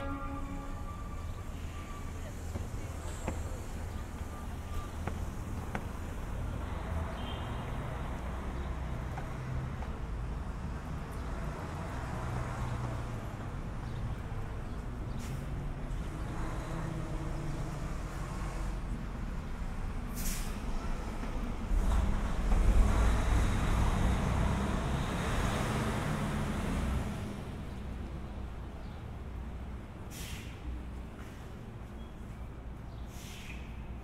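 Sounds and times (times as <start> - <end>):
traffic rumble: 0.0 - 34.0
short hiss: 20.1 - 20.6, 30.1 - 30.6, 33.1 - 33.7.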